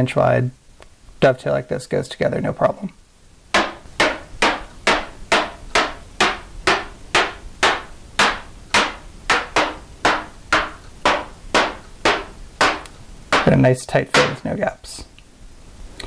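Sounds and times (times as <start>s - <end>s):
mallet striking wood: 3.5s - 14.5s.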